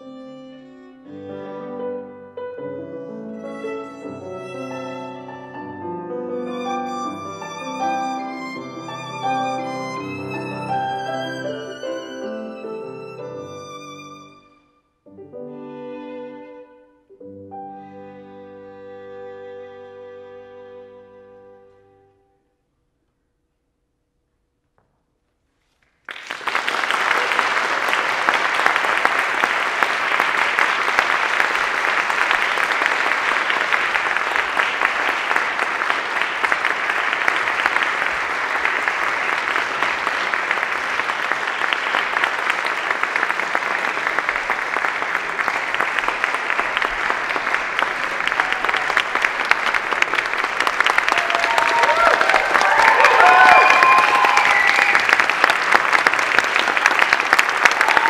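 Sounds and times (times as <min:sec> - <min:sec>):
audience applause: 0:26.0 - 0:58.0.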